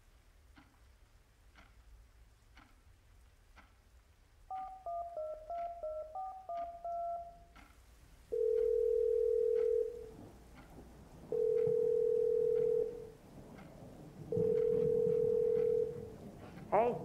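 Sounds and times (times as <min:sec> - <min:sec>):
faint regular ticks: 0:00.4 - 0:16.7
telephone ringback tone: 0:04.5 - 0:07.5, 0:08.3 - 0:10.1, 0:11.3 - 0:13.1, 0:14.3 - 0:16.1
touch-tone key beeps: 0:04.5 - 0:07.5.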